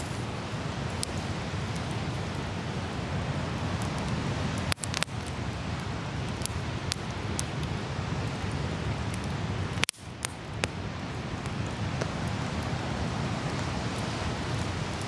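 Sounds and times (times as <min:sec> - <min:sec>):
ocean surf rumble: 0:00.0 - 0:04.8, 0:10.5 - 0:15.0
campfire crackling and popping: 0:00.0 - 0:15.0.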